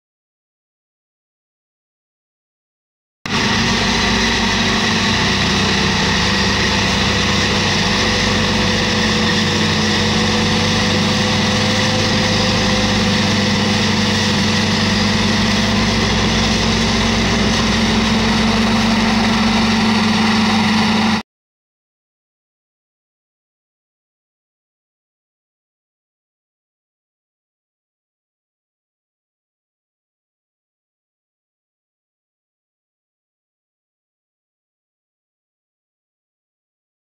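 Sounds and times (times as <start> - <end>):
forage harvester chopping corn: 3.3 - 21.2.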